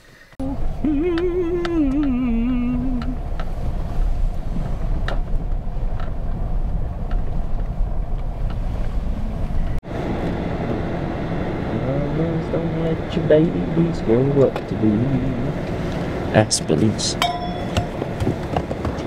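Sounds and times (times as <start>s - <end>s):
engine and tyres rumbling: 0.0s - 19.0s
man humming: 0.4s - 3.2s, 11.7s - 15.6s.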